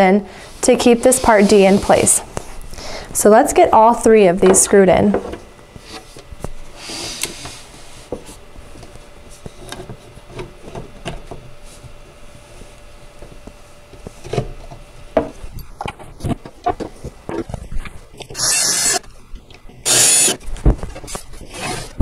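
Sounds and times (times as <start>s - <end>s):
boards rubbing together: 0.8s - 2.2s.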